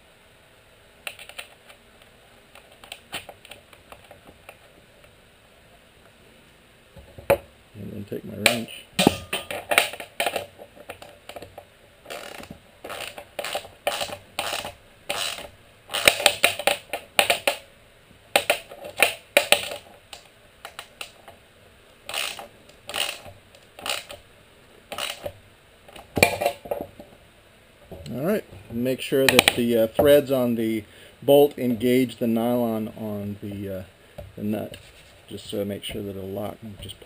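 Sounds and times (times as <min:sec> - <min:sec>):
ratchet wrench clicking: 0:12.1 - 0:17.6, 0:22.1 - 0:24.2, 0:24.9 - 0:25.3.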